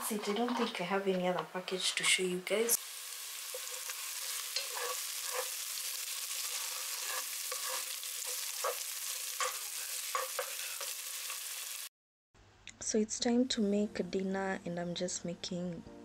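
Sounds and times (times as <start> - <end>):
utensil scraping a pan: 0.0 - 2.2, 3.5 - 11.4
food sizzling in a pan: 2.6 - 11.9.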